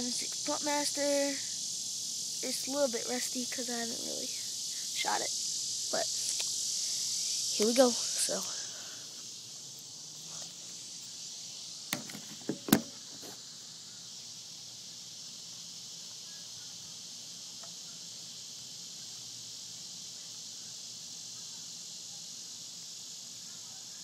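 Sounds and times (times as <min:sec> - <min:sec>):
insects chirping: 0:00.0 - 0:24.0
camera handling knocks: 0:11.9 - 0:13.0.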